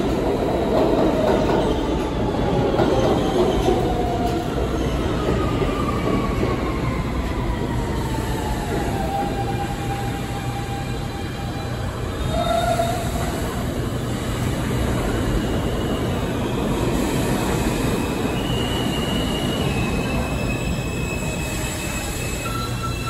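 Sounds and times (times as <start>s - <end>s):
train wheels rumbling on rail: 0.0s - 23.0s
high-pitched wheel squeals: 18.3s - 23.0s.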